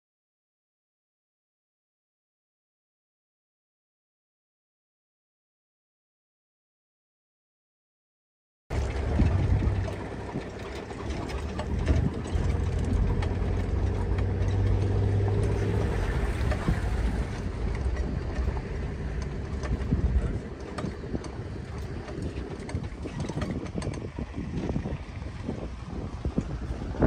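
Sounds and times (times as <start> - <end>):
vehicle engine idling: 8.7 - 27.0.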